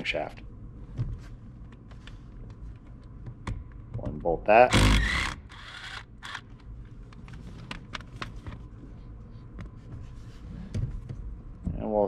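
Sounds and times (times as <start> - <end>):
cordless power tool running: 4.7 - 6.4.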